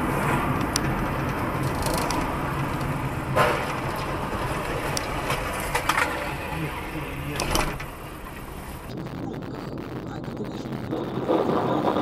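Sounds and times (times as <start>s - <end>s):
car engine and road noise: 0.0s - 12.0s
car collision crash: 3.3s - 3.9s.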